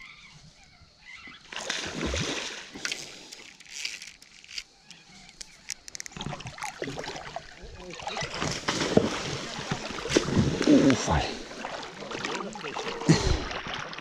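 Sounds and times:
water splashing and sloshing: 1.4s - 14.0s
sharp clicks: 3.3s - 6.2s.

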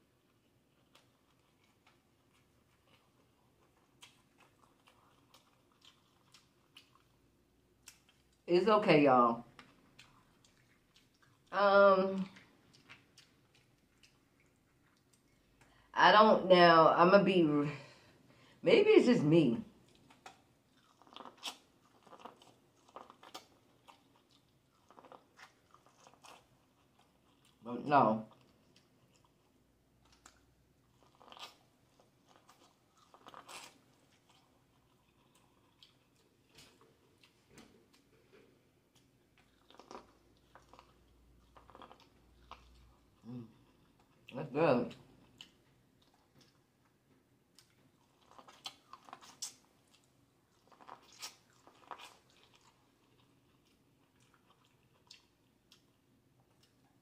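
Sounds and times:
biting and chewing corn: 19.8s - 27.6s, 28.3s - 44.3s, 47.6s - 57.0s.

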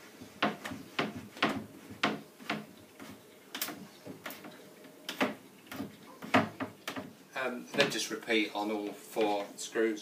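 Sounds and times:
wooden handrail clicks and knocks: 0.4s - 2.7s, 3.5s - 7.1s.

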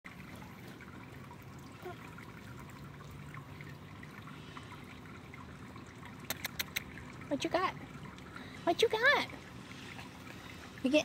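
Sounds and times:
water trickling: 0.1s - 11.0s
small ticks: 6.3s - 6.9s.

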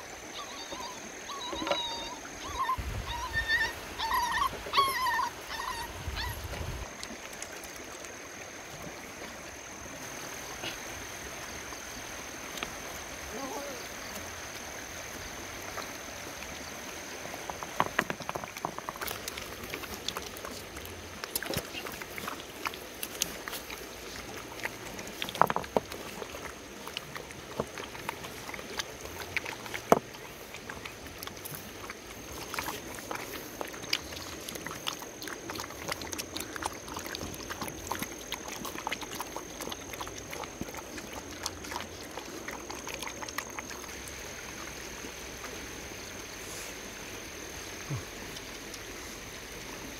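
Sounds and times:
puppies lapping and chewing: 0.0s - 49.9s.

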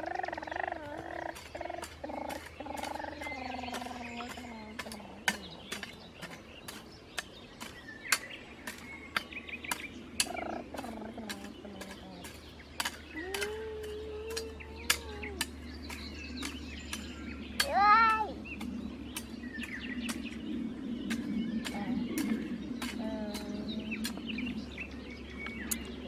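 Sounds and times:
low voice: 0.0s - 6.4s, 10.3s - 12.4s, 13.2s - 15.5s, 21.7s - 24.2s.

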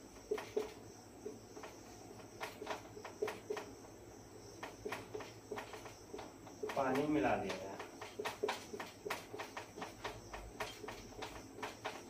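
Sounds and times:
marker scratching on whiteboard: 0.2s - 0.8s, 4.6s - 12.0s.

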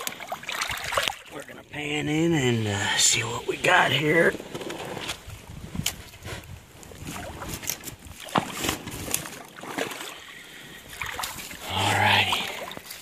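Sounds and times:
footsteps sloshing in shallow water: 0.0s - 1.7s, 5.9s - 13.0s.

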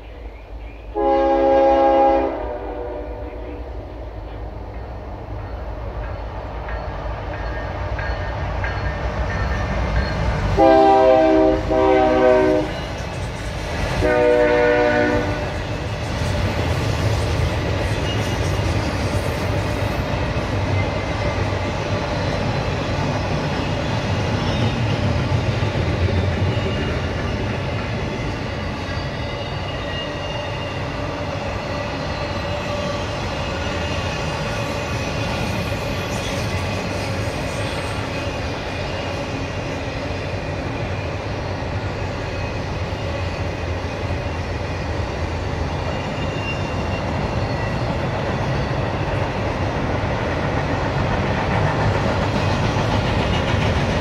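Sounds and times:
train rumbling on rails: 0.0s - 54.0s
train horn blasts: 1.0s - 3.7s, 10.6s - 12.9s, 14.0s - 15.6s.

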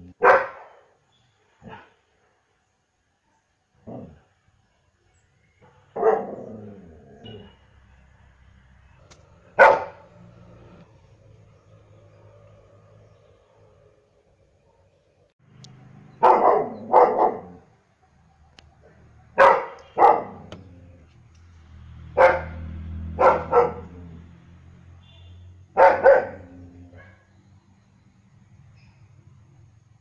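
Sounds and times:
dog barking: 0.2s - 0.9s, 1.6s - 2.0s, 5.6s - 6.5s, 9.5s - 10.2s, 16.2s - 17.7s, 19.3s - 20.6s, 22.2s - 24.1s, 25.7s - 27.3s.

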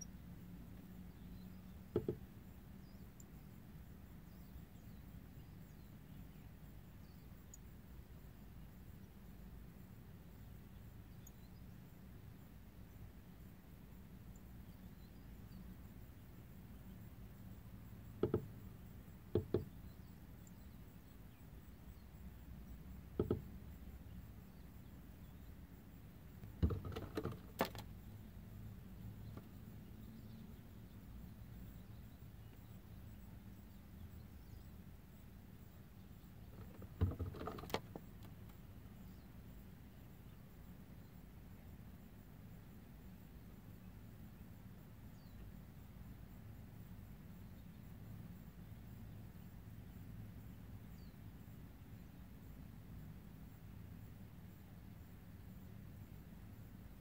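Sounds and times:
faint low hum: 0.0s - 57.0s
bird tapping on car mirror: 1.9s - 2.3s, 18.2s - 18.6s, 19.3s - 19.8s, 23.1s - 23.6s, 26.4s - 27.9s, 29.2s - 29.5s, 36.5s - 38.6s.

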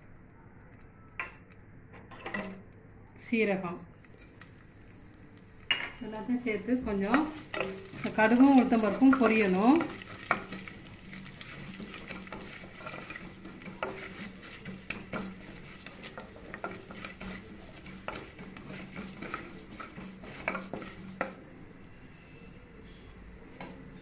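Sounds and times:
seeds frying in hot oil: 4.0s - 23.4s
wooden spatula stirring: 6.2s - 21.8s.

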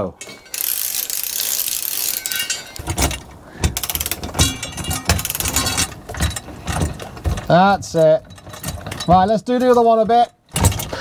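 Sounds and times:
socket ratchet clicking: 0.5s - 2.4s, 3.8s - 4.2s
metallic knocks and clunks: 2.2s - 11.0s.

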